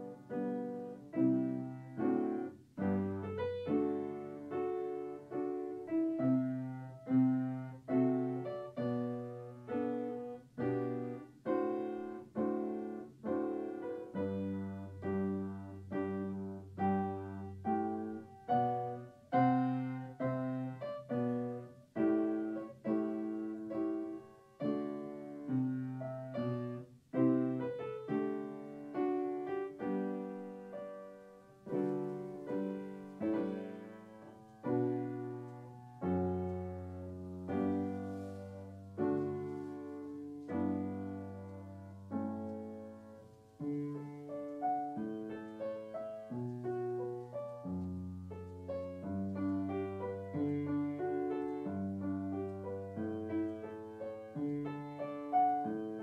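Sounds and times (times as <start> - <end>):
gentle piano music: 0.0 - 56.0.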